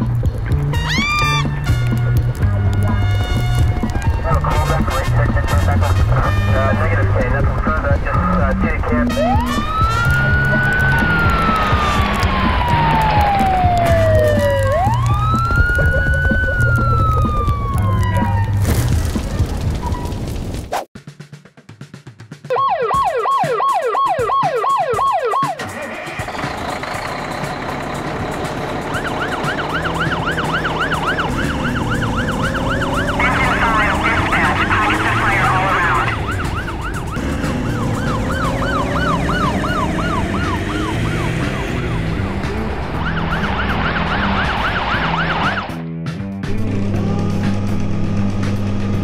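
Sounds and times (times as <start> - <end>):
toy siren yelping: 0.9 - 1.5, 9.3 - 18.5, 22.5 - 25.7, 28.9 - 41.2.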